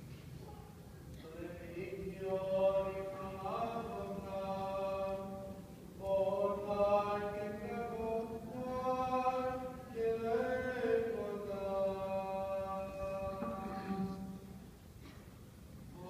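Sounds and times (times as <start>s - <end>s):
man chanting long notes: 10.3s - 14.5s
low held drone note: 13.1s - 14.6s.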